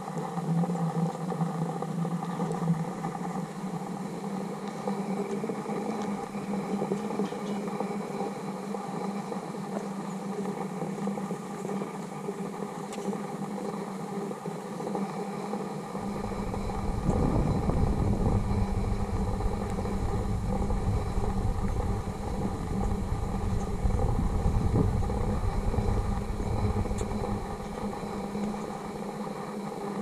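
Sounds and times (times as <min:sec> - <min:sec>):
steady low hum: 0:00.0 - 0:30.0
wind buffeting microphone: 0:16.0 - 0:29.0.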